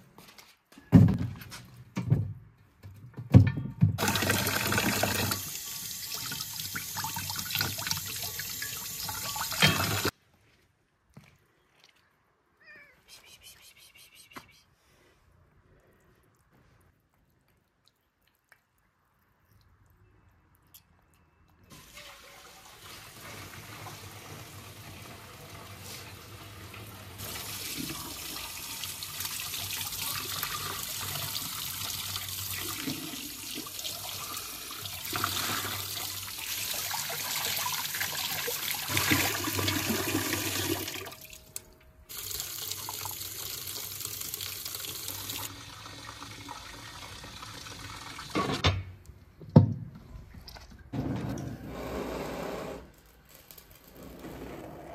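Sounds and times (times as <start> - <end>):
water running from tap into sink: 4.0 - 10.1, 42.1 - 48.4.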